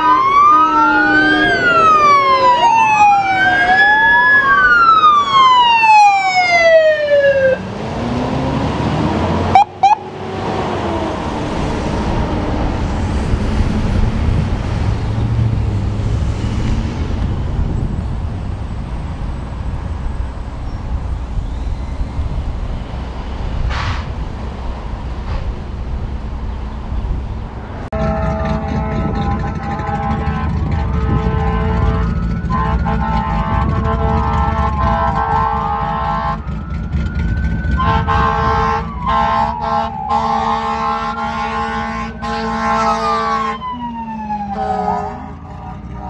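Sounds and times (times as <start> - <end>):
electronic siren wailing: 0.0 - 7.7, 9.2 - 11.4, 28.0 - 45.8
faint siren sweep: 0.0 - 14.1, 29.9 - 33.5, 34.6 - 46.0
road noise: 0.0 - 46.0
low engine rumble: 8.9 - 40.0.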